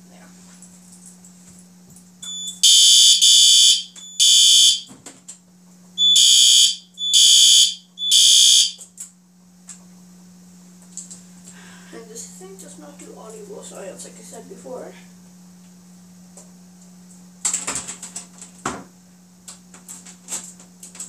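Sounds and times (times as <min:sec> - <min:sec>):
fire alarm horn blasts: 0:02.2 - 0:04.9, 0:06.0 - 0:08.9.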